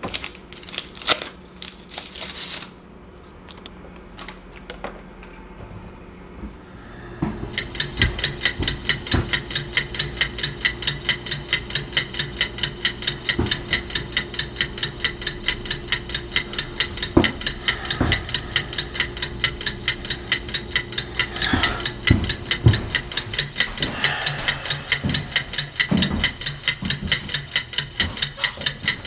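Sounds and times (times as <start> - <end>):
steady low hum: 0.0 - 29.0
clock-like ticking: 7.4 - 29.0.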